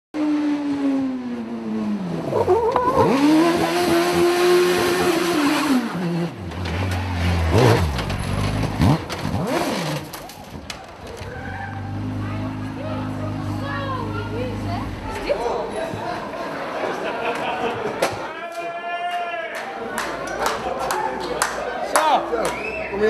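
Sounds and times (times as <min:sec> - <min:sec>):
buggy engine revving: 0:00.2 - 0:16.4.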